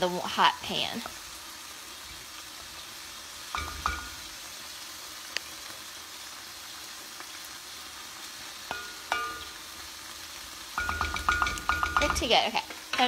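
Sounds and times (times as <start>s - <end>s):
fish sizzling in oil: 0.0s - 13.0s
wooden spoon knocking a pot: 3.5s - 4.3s, 8.7s - 9.6s, 10.8s - 13.0s.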